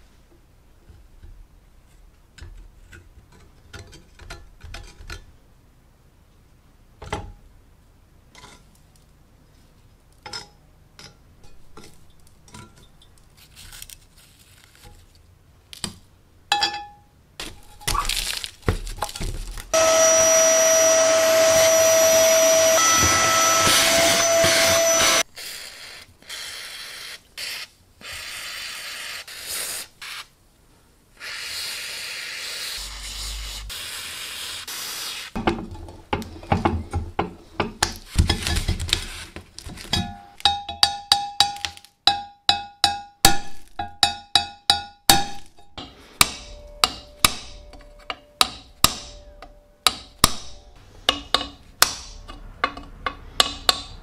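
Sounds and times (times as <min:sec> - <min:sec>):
aerosol can spraying: 0:25.6 - 0:30.3, 0:31.3 - 0:35.4
metal pick scraping iron: 0:43.8 - 0:54.0
metal punch tapping iron: 0:43.8 - 0:54.0.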